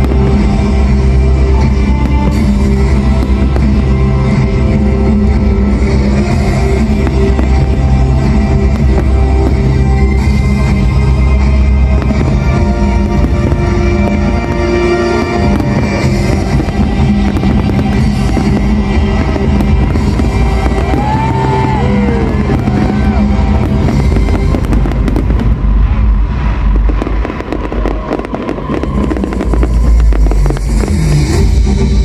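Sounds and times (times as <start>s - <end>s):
fireworks bursting and crackling: 0.0s - 32.0s
loud music: 0.0s - 32.0s.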